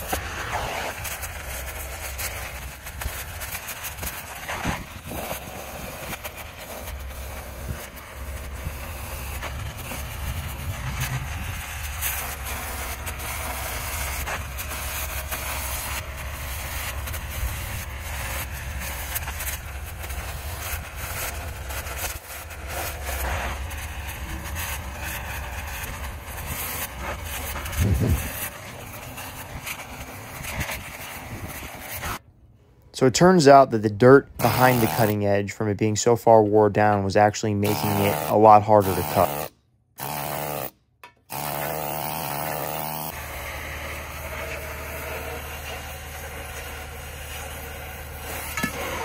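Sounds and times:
crackling and popping slag: 0:00.0 - 0:32.2
cutting torch hissing: 0:00.0 - 0:32.2, 0:33.3 - 0:35.4, 0:37.4 - 0:49.0.

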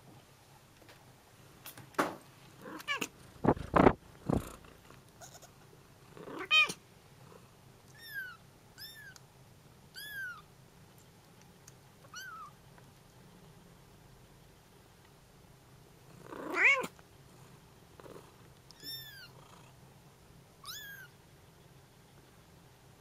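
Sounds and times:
kittens mewing: 0:16.2 - 0:17.0, 0:18.7 - 0:19.4, 0:20.6 - 0:21.2.

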